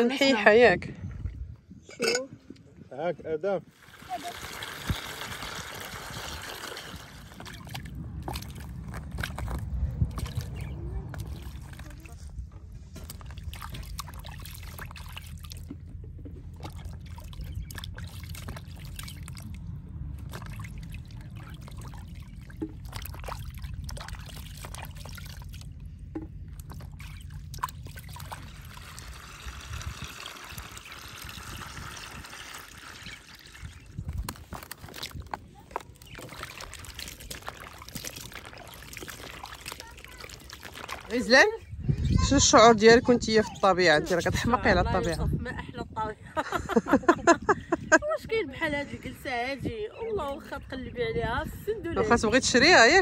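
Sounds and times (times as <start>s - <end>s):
low steady rumble: 0.0s - 53.0s
water sloshing in plastic basin: 3.7s - 41.7s.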